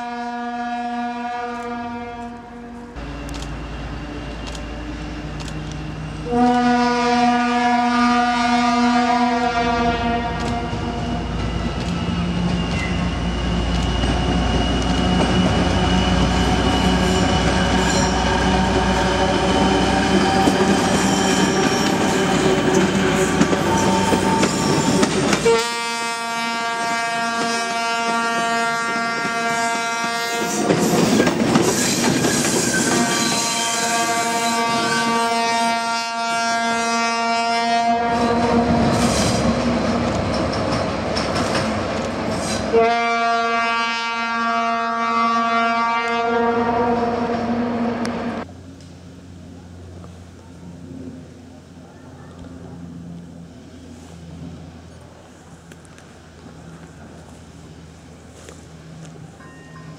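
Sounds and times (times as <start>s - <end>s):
locomotive horn blasts: 0.0s - 3.0s, 6.2s - 10.9s, 23.3s - 30.8s, 32.8s - 38.9s, 42.7s - 48.2s
rush of train noise: 0.0s - 59.9s
diesel locomotive engine running: 2.2s - 35.8s, 37.8s - 43.1s, 46.1s - 59.9s.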